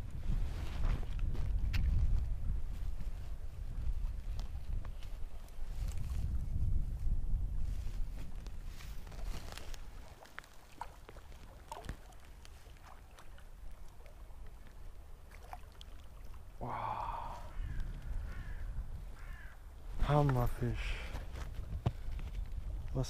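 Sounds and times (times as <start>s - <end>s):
wind rumble on microphone: 0.0s - 10.3s, 16.5s - 23.0s
small clicks and rustles: 8.1s - 14.8s, 21.1s - 23.0s.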